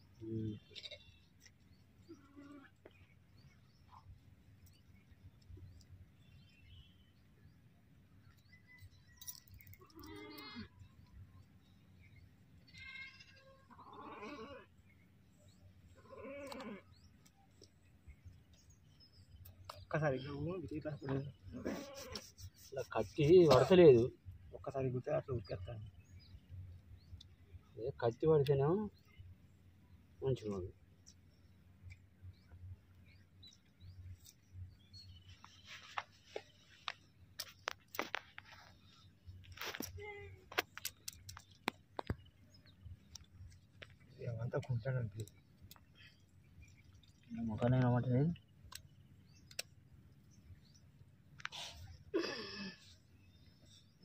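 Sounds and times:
sheep bleating: 0:12.7 - 0:14.7
knife scraping hoof horn: 0:21.5 - 0:23.7
sharp clicks: 0:48.6 - 0:49.8.

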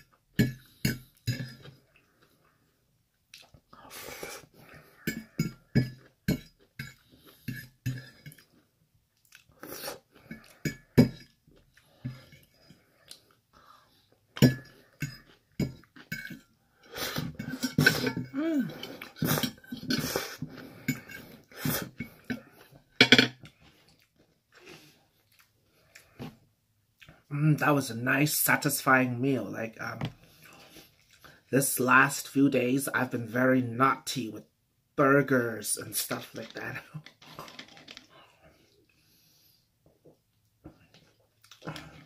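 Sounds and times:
chewing: 0:03.3 - 0:03.8, 0:04.5 - 0:16.5, 0:23.5 - 0:26.4, 0:30.3 - 0:31.4, 0:40.9 - 0:42.0.

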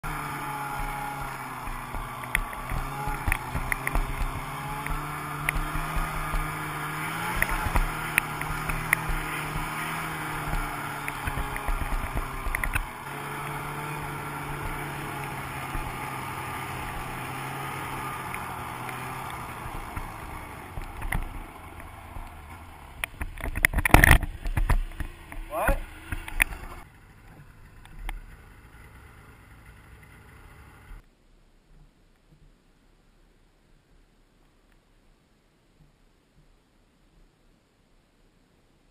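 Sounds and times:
snowmobile engine running: 0:00.0 - 0:31.0.

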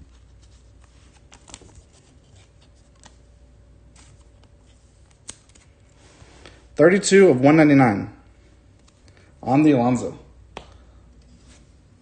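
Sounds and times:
cards sliding and rustling: 0:00.0 - 0:03.2, 0:03.9 - 0:06.6, 0:11.2 - 0:11.8
low steady hum: 0:00.0 - 0:12.0.

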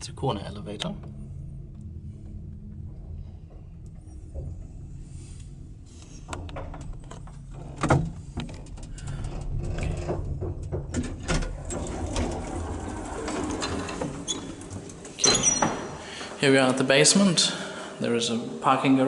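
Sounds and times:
lift humming: 0:00.0 - 0:18.6
lift doors opening: 0:03.4 - 0:17.2
clicks and rattles: 0:06.3 - 0:15.2.

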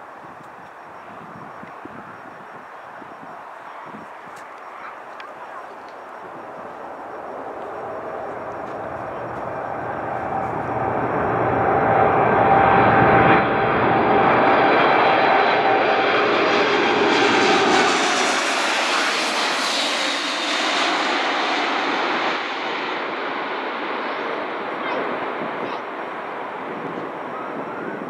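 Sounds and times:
jet engines whining and rumbling: 0:00.0 - 0:28.0
jet passing with rushing noise: 0:06.2 - 0:27.3.

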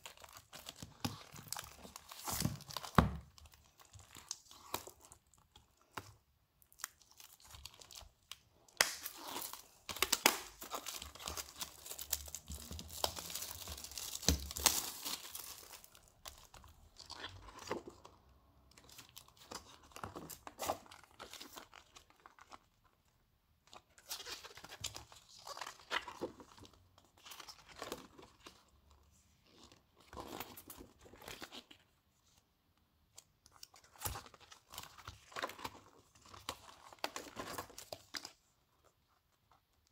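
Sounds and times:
plastic wrapping crinkling: 0:00.0 - 0:18.1.

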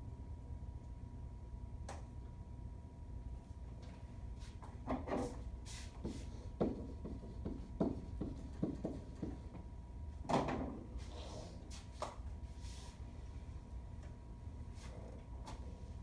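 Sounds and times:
marker writing on whiteboard: 0:06.0 - 0:09.6.

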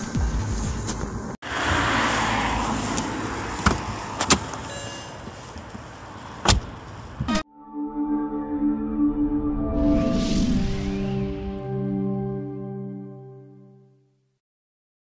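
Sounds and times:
car door clicks: 0:03.6 - 0:04.6, 0:06.4 - 0:07.3
car door thump: 0:06.4 - 0:06.7.

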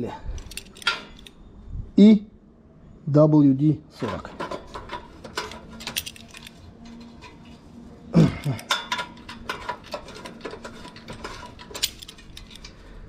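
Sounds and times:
metal tools clinking on bolts: 0:00.3 - 0:01.4, 0:04.0 - 0:07.6, 0:08.3 - 0:13.0.

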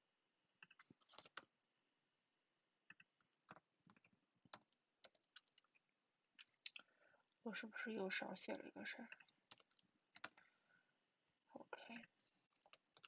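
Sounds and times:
computer keyboard typing: 0:00.6 - 0:01.5, 0:02.9 - 0:05.8, 0:09.1 - 0:10.4, 0:12.6 - 0:13.0.

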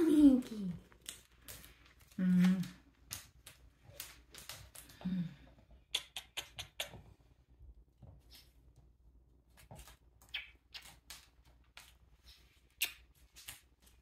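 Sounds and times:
kitten paws scampering on wood floor: 0:00.1 - 0:05.1.

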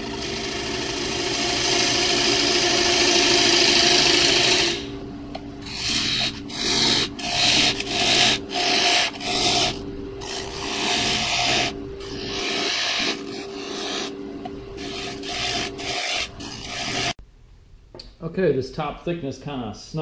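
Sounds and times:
gouge cutting wood on lathe: 0:00.0 - 0:04.9, 0:05.6 - 0:14.2, 0:14.8 - 0:17.2
lathe humming: 0:00.0 - 0:17.2.

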